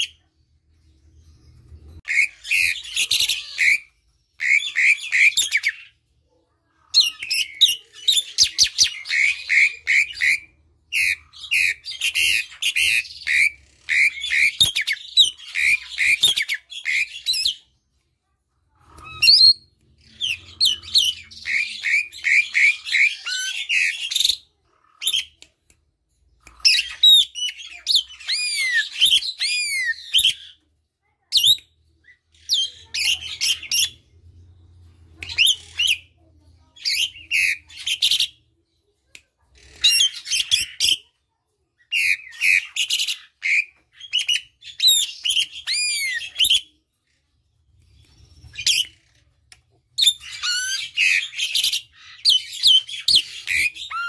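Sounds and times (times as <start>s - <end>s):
starling singing: 1.5s - 5.9s, 6.9s - 17.7s, 18.8s - 25.4s, 26.5s - 30.6s, 41.9s - 46.8s, 50.0s - 54.0s.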